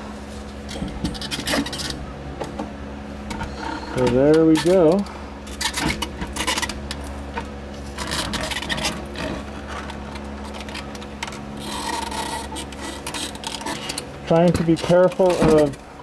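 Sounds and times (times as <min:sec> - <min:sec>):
plastic scraping against metal rim: 0:07.8 - 0:15.7.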